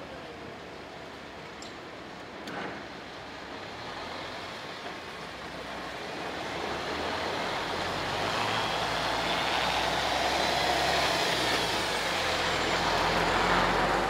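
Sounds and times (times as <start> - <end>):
truck diesel engine pulling away: 5.4 - 14.0.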